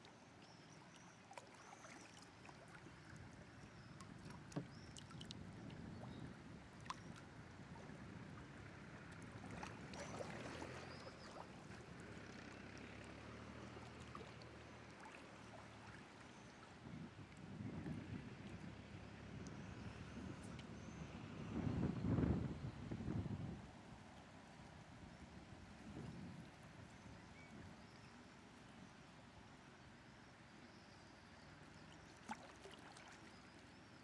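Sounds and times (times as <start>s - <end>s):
water lapping at canoe hull: 0.0s - 20.6s, 31.5s - 34.0s.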